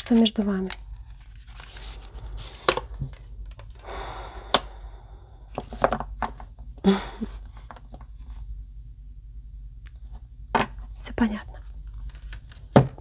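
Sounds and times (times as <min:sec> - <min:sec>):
cards rustling: 0:00.0 - 0:03.9, 0:11.8 - 0:12.7.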